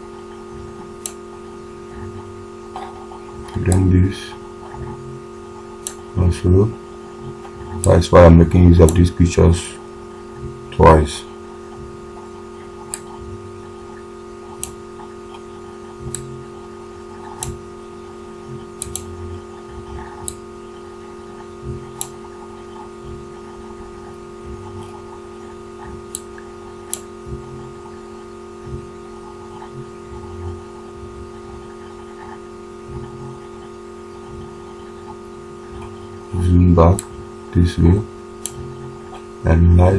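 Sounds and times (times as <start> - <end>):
steady electrical hum: 0.0 - 39.9
computer mouse clicking: 2.8 - 3.9, 14.5 - 16.3, 17.1 - 17.6, 18.7 - 20.4, 21.4 - 23.6.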